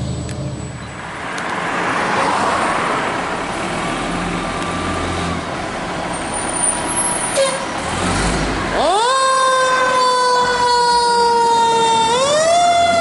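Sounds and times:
diesel engine humming: 0.0s - 1.8s
vehicle passing: 0.0s - 8.9s
road traffic noise: 0.0s - 13.0s.

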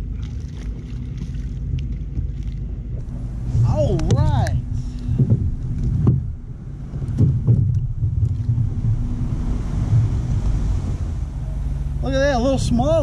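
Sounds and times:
faint steady hum: 0.0s - 13.0s
wind rumble on microphone: 0.0s - 13.0s.

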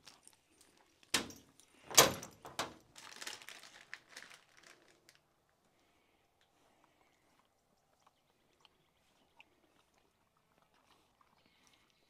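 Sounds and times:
door latch clunks: 1.2s - 2.8s.

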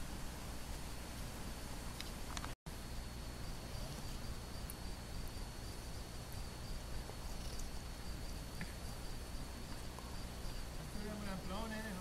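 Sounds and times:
faint high-pitched whine: 0.0s - 12.0s
faint ticks: 6.2s - 7.9s, 8.5s - 8.9s.

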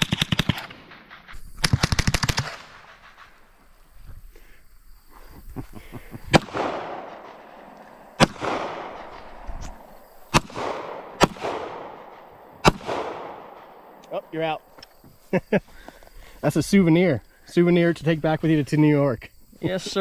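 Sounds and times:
gunshots with rolling echo: 0.0s - 3.7s, 6.3s - 14.5s.

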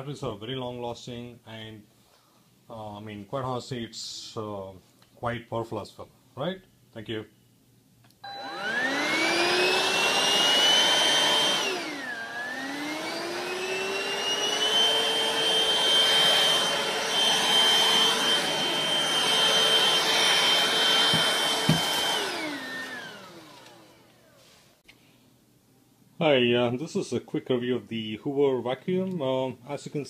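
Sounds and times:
cordless vacuum motor whine: 8.2s - 24.4s.

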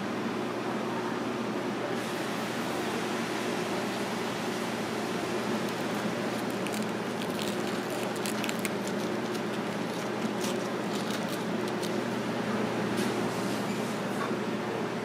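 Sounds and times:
room hum with mechanical drone: 0.0s - 15.0s
chopsticks clicking on crisp food: 5.6s - 12.1s.

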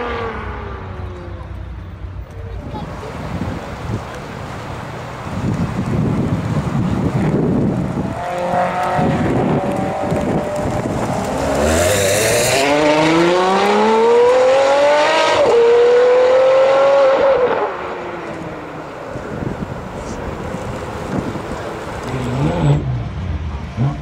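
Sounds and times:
car engine accelerating hard: 6.2s - 24.0s.

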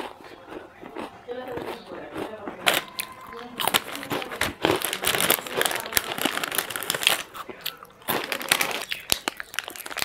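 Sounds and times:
plastic snack packet crinkling: 2.1s - 10.0s.

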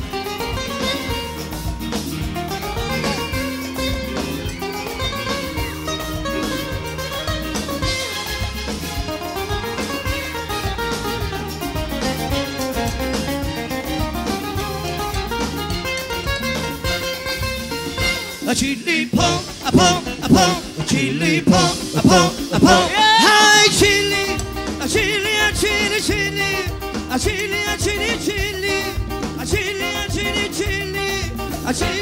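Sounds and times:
band playing guitars and drums: 0.0s - 32.0s
man singing: 18.4s - 32.0s.

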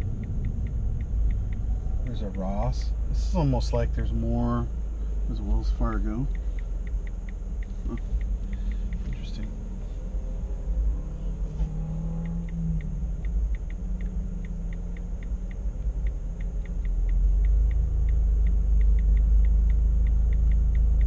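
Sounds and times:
car engine idling: 0.0s - 21.0s
light ticks: 0.0s - 21.0s.

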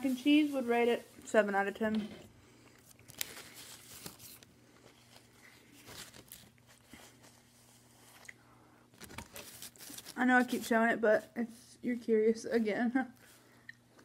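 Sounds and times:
paper wrapper crinkling: 2.8s - 8.3s, 8.9s - 10.8s
quiet chewing: 8.0s - 8.5s.

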